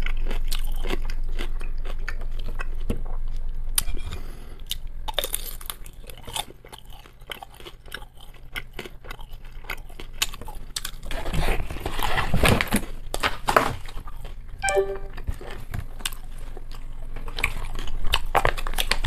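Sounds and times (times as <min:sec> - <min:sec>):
chewing with wet mouth clicks: 0:00.0 - 0:04.0, 0:04.6 - 0:11.1, 0:16.0 - 0:19.0.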